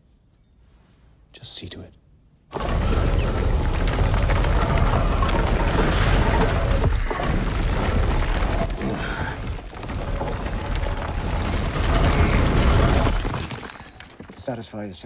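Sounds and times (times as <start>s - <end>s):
deep rumbling booms: 2.6s - 13.6s.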